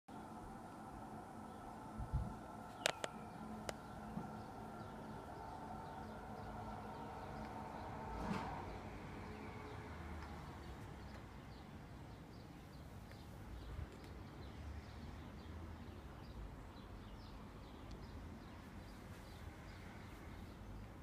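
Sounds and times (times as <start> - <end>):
low steady rumble: 0.1 - 10.4
small birds chirping: 2.6 - 8.0, 8.7 - 21.0.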